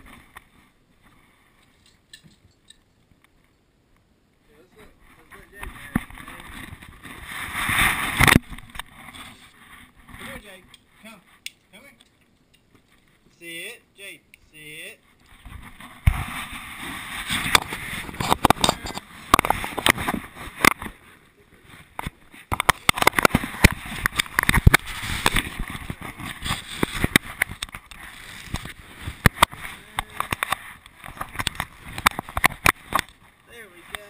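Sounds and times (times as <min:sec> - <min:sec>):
camera rubbing and scraping: 0:04.8 - 0:11.4, 0:15.0 - 0:34.0.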